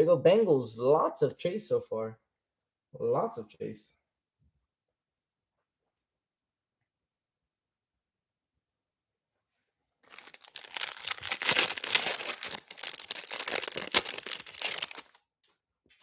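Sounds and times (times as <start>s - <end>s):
plastic wrapper crinkling: 10.0s - 15.2s.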